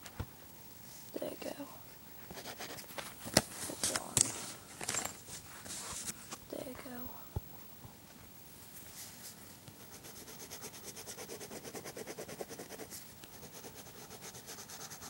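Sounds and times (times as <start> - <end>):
colored pencil scribbling on paper: 2.3 - 2.9, 9.8 - 15.0.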